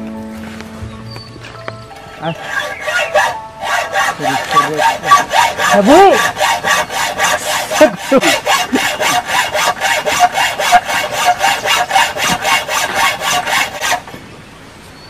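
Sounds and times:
hacksaw cutting steel: 2.2s - 14.1s.

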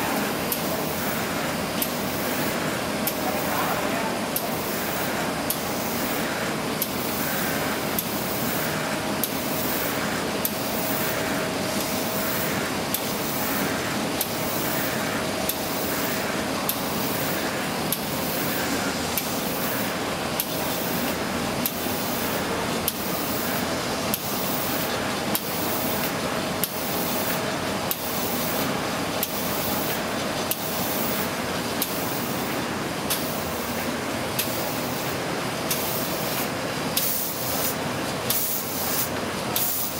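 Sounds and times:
machine hiss and hum: 0.0s - 39.9s
sharp repeating click: 30.5s - 32.0s, 33.1s - 33.3s, 35.7s - 39.9s.

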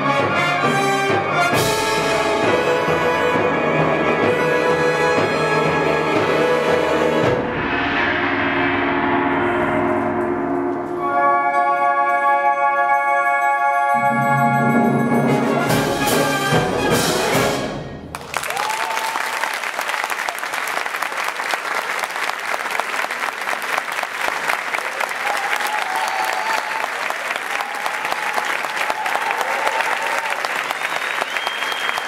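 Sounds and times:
wind band chord with mallet percussion: 10.8s - 17.8s
audience applauding: 18.1s - 32.0s.

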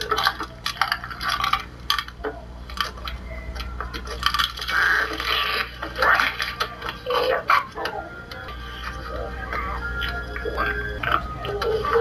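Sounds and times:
egg cracking clicks and clinks: 0.0s - 8.5s
low steady hum: 0.0s - 12.0s.

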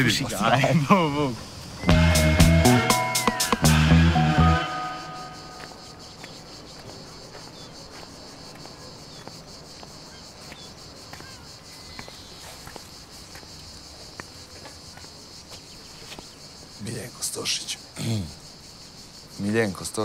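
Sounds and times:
insect chorus buzzing: 0.0s - 20.0s
faint ticks and rustles: 5.6s - 17.4s.

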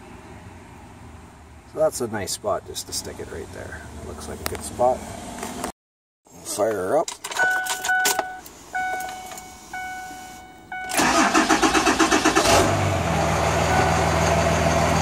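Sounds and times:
dashboard warning chimes: 7.3s - 11.4s
diesel engine idling: 9.6s - 15.0s
starter motor cranking: 10.9s - 12.6s.

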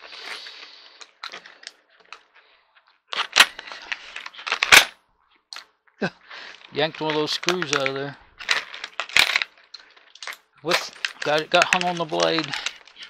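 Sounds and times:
plastic crackling and crinkling: 0.0s - 13.0s.

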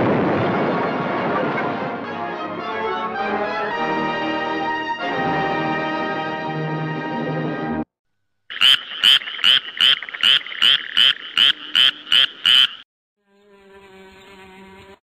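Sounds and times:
sharp chirping pulses: 8.5s - 12.8s.

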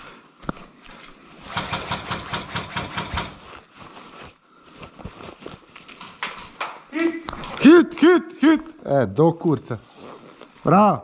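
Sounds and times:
airsoft rifle full-auto burst: 1.4s - 3.5s.

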